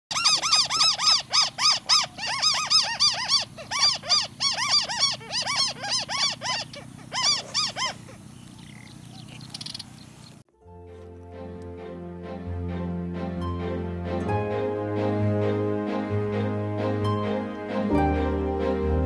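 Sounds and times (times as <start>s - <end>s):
bird calling rapid notes: 0.1s - 10.4s.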